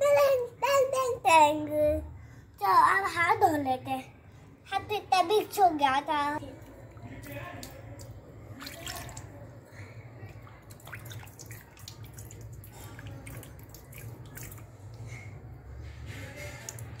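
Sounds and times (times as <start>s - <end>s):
water splashes and drips: 6.6s - 15.2s, 16.0s - 17.0s
hands washing in water: 7.1s - 9.5s, 10.2s - 15.0s.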